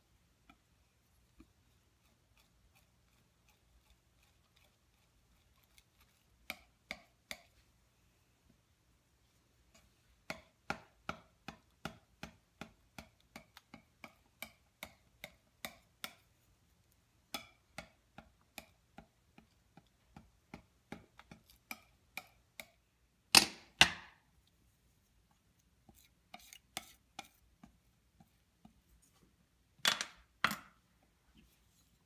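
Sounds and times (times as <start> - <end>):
palette knife tapping on slab: 6.4 - 7.5, 10.3 - 16.2, 17.3 - 22.8.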